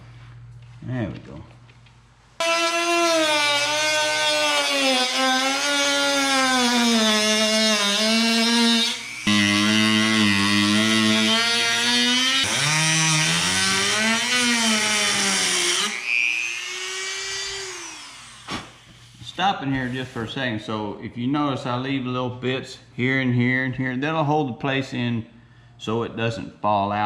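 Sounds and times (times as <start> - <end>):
rotary tool cutting whine: 2.4 - 19.1.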